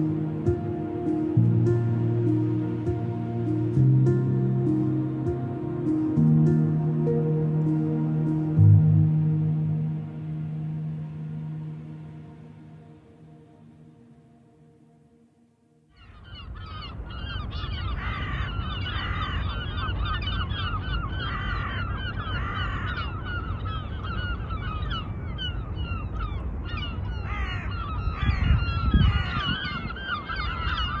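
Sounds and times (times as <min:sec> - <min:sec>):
faint music: 0:00.0 - 0:31.0
flock of birds calling: 0:15.9 - 0:31.0.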